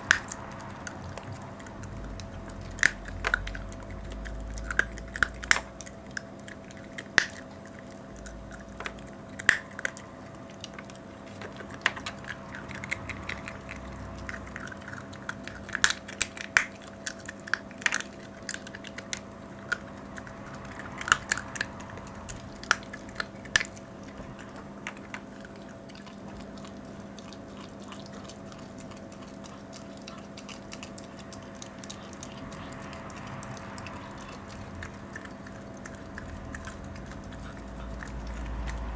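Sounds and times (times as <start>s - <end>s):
bone cracking between teeth: 0.0s - 38.9s
dog chewing bones: 0.0s - 38.9s
steady hum: 0.0s - 38.9s.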